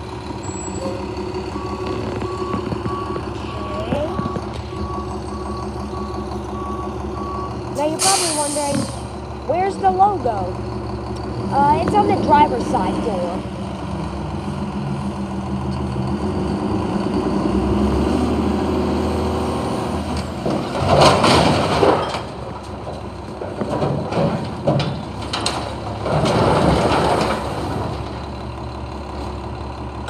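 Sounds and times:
garbage truck engine revving: 0:00.0 - 0:30.0
trash crashing into hopper: 0:20.4 - 0:22.8, 0:23.4 - 0:28.2.

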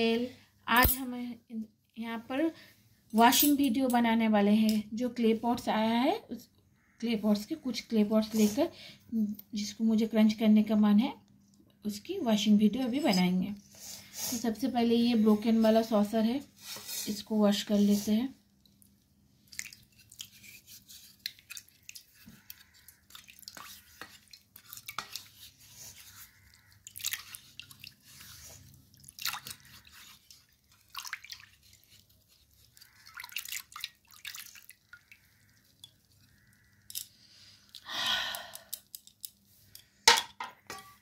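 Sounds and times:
water splashing in a steel bowl: 0:19.5 - 0:36.9.

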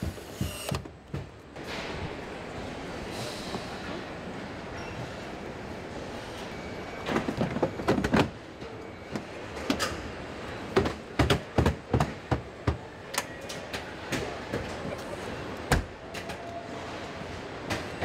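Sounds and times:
machinery clanks and clicks: 0:06.2 - 0:16.6.

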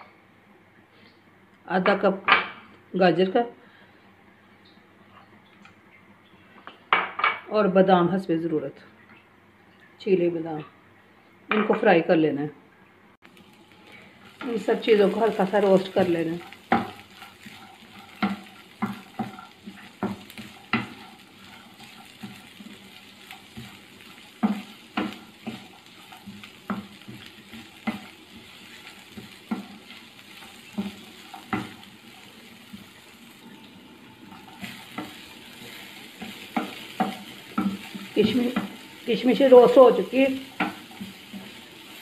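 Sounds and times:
food sizzling in oil: 0:13.2 - 0:42.0
wooden spoon scraping a pan: 0:13.9 - 0:42.0.

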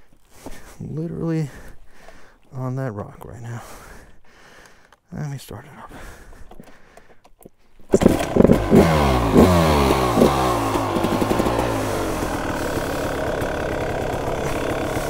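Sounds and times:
dirt bike engine revving and idling: 0:07.9 - 0:15.0.

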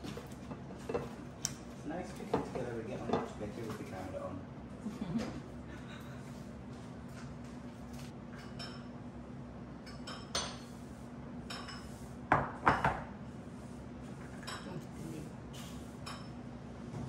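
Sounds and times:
bowls and utensils clinking: 0:09.8 - 0:10.7, 0:11.4 - 0:11.9, 0:14.2 - 0:14.9, 0:16.0 - 0:16.4
loud knocks on countertop: 0:12.3 - 0:13.1.

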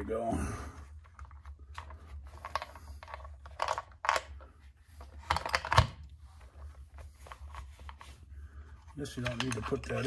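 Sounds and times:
plastic parts clicking and knocking: 0:01.0 - 0:06.1, 0:09.1 - 0:10.0.

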